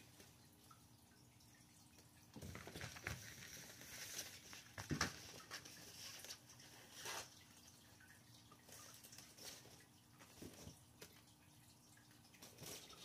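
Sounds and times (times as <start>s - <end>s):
crinkling and rustling fabric: 2.4s - 7.4s.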